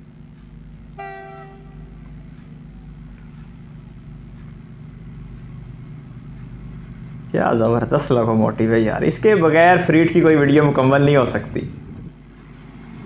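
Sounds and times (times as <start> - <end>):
locomotive engine rumble: 0.0 - 13.0
locomotive horn blast: 0.9 - 2.3.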